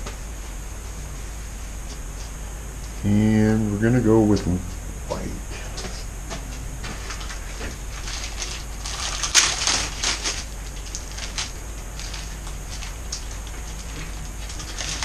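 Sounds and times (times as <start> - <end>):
low steady hum: 0.0 - 15.0
clicks and crinkles of handling: 6.9 - 15.0.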